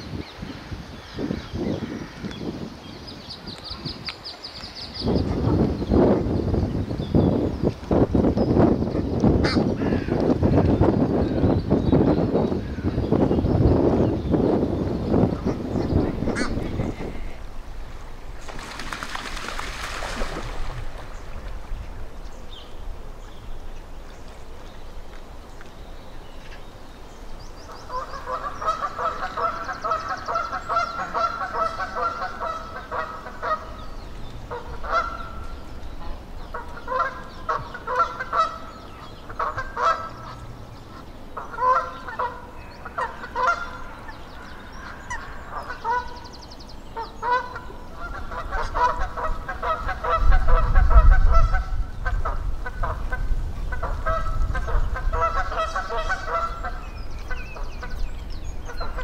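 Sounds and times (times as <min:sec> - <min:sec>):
geese honking: 0:27.9 - 0:33.8, 0:34.5 - 0:35.4, 0:36.0 - 0:44.0, 0:53.7 - 0:58.0.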